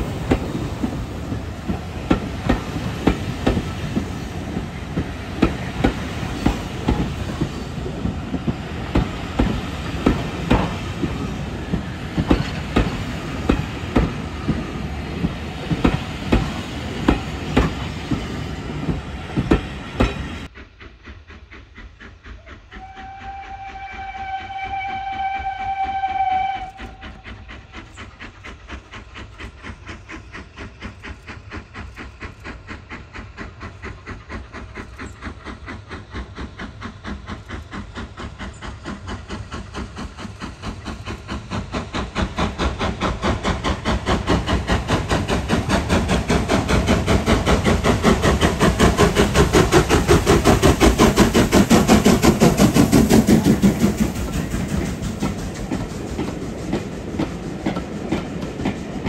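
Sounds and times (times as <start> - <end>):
steam locomotive exhaust beats: 0.0 - 59.0
steam locomotive whistle: 22.3 - 27.7.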